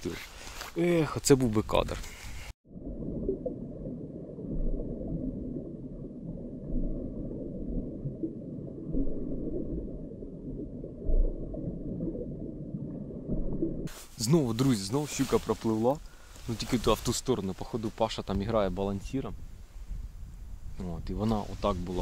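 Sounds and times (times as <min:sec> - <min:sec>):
muffled underwater rumbling: 0:02.6 - 0:13.9.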